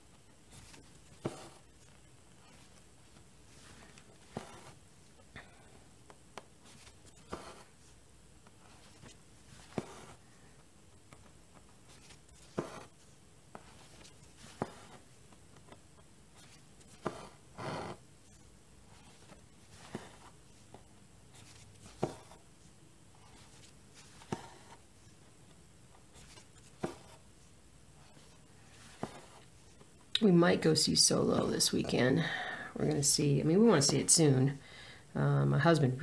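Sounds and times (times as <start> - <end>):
thread rasping through cloth: 0.4 - 25.2.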